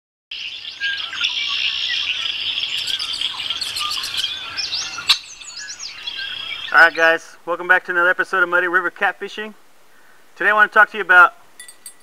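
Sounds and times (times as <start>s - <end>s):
steady high bird trill: 0.3s - 7.2s
birds chirping: 0.3s - 7.9s.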